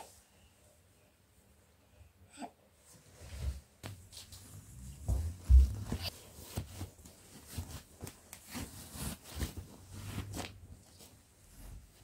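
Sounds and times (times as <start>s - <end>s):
garment bags rustling: 4.6s - 12.0s.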